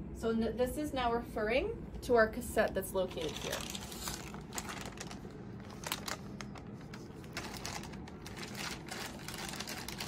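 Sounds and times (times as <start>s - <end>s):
plastic packaging crinkling: 3.0s - 10.0s.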